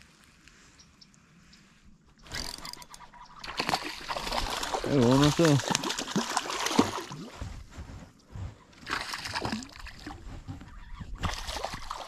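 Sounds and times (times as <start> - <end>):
fish splashing in water: 3.4 - 7.3, 8.8 - 10.2, 11.2 - 12.0.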